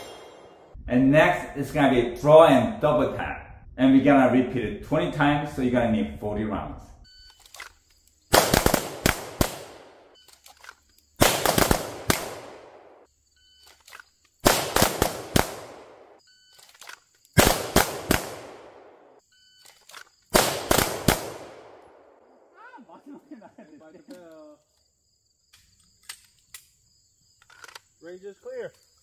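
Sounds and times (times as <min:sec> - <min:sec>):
pistol gunshots: 0:08.3 - 0:10.1, 0:11.2 - 0:13.1, 0:14.4 - 0:16.2, 0:17.4 - 0:19.0, 0:20.3 - 0:22.2.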